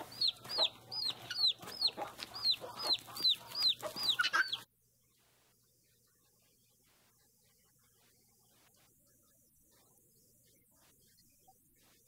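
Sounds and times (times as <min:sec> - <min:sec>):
chickens clucking: 0:00.0 - 0:04.7.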